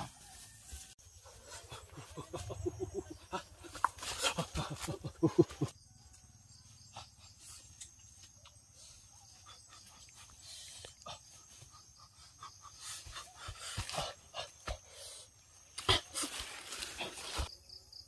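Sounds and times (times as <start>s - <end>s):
foliage rustling: 15.6s - 17.5s.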